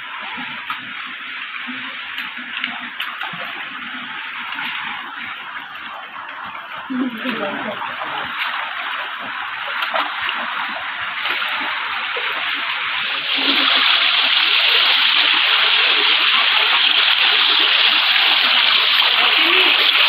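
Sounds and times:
stream rushing over stones: 0.0 - 20.0.

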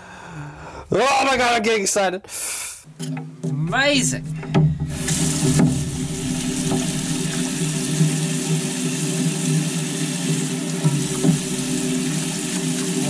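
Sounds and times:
low hum: 3.4 - 12.5
tap water splashing on metal: 4.4 - 13.0.

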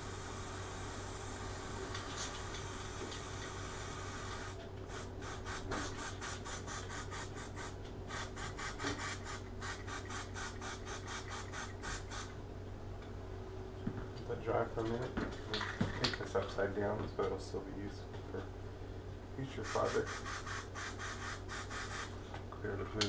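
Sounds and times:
aerosol spray hissing: 0.0 - 12.3, 19.6 - 22.2.

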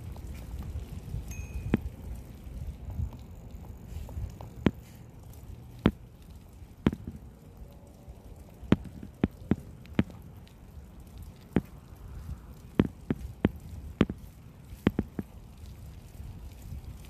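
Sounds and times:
bicycle clicks and knocks: 8.5 - 17.0.

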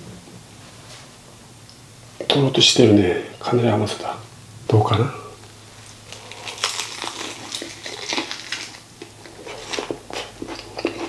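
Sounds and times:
crunching of crispy fried chicken: 5.8 - 11.0.

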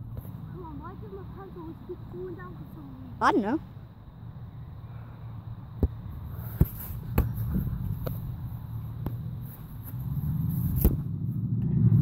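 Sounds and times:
football tapped with foot: 5.8 - 10.0.

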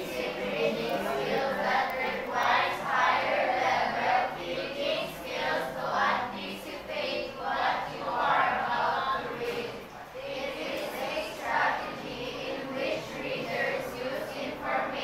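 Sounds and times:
girls reading aloud in unison: 0.0 - 15.0.

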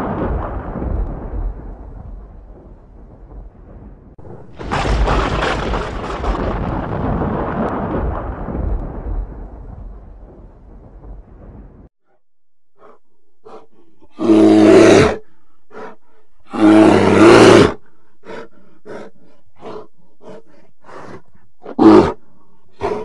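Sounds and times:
low rumble: 0.0 - 11.9
large animal roaring: 12.8 - 20.4
animal grunts: 12.8 - 23.0.

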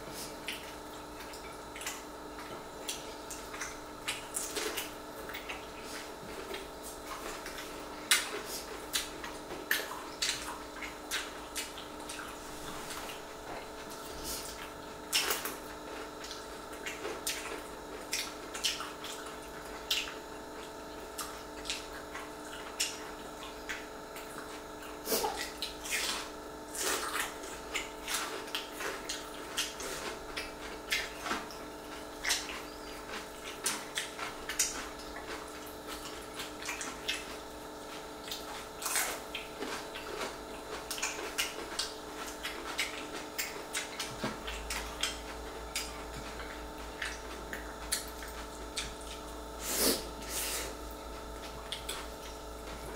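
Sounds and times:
wet chewing and lip smacks: 26.8 - 37.4, 38.2 - 49.4, 51.3 - 52.9.

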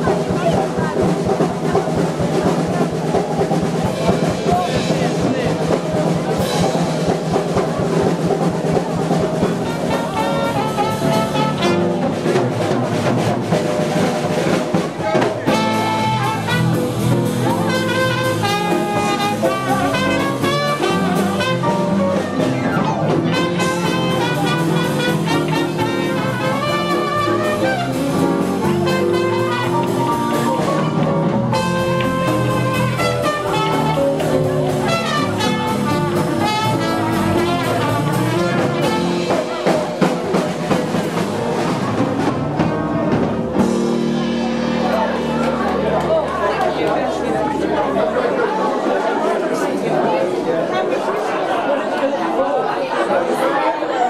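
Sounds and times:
drums: 0.0 - 51.6
trumpet: 9.2 - 13.0, 14.7 - 40.7
electric bass: 15.4 - 39.4.

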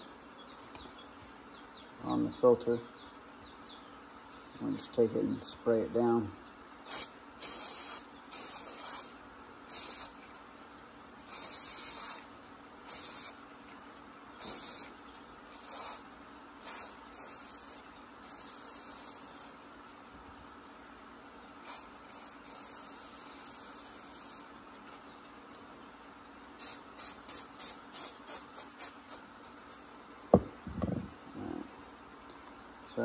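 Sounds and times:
aerosol can spraying: 6.9 - 10.2, 11.3 - 12.3, 12.9 - 13.4, 14.4 - 14.9, 15.5 - 16.0, 16.6 - 19.6, 21.6 - 24.5, 26.6 - 29.2.

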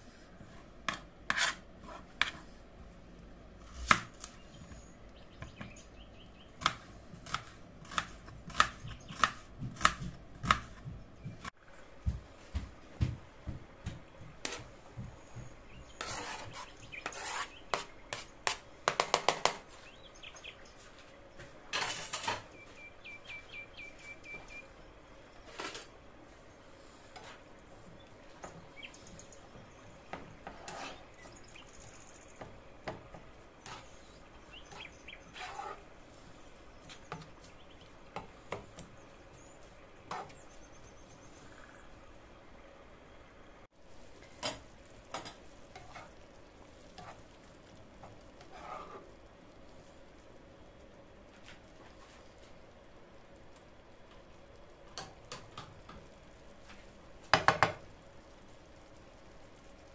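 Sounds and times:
spatula stirring in pan: 0.3 - 2.8, 13.8 - 19.9, 21.5 - 22.9, 25.4 - 39.0, 39.6 - 41.6, 44.0 - 52.6
vegetables scraped into pan: 0.6 - 2.5, 15.8 - 18.6, 21.7 - 22.6, 25.4 - 26.0, 30.4 - 31.4, 33.6 - 35.9, 44.2 - 47.4, 48.0 - 49.2
knife chopping on plastic board: 3.8 - 4.2, 6.6 - 11.5.

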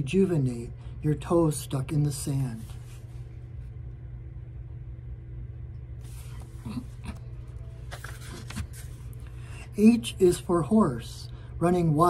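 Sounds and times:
low background rumble: 0.0 - 12.0
coloring book rustling: 2.5 - 3.3, 6.0 - 9.3.

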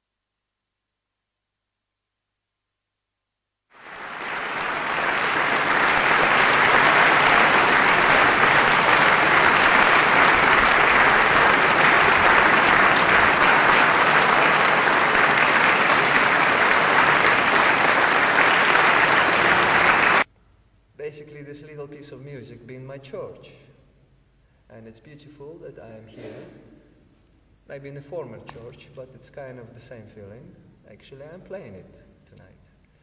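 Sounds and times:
concert audience applauding: 3.7 - 20.3.

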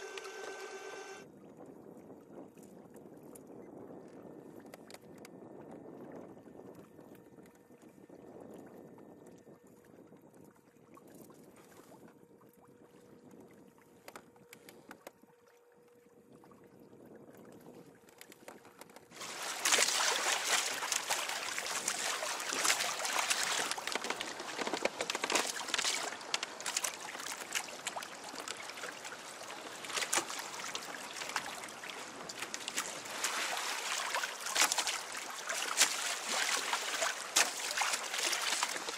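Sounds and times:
water rushing along hull: 0.0 - 1.7, 5.6 - 38.9
wind on microphone: 1.3 - 14.9.

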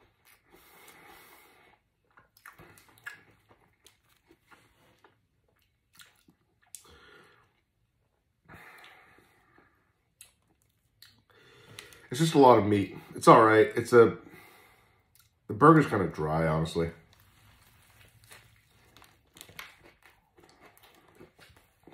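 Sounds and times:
person chewing food: 0.0 - 12.1, 17.1 - 21.9.

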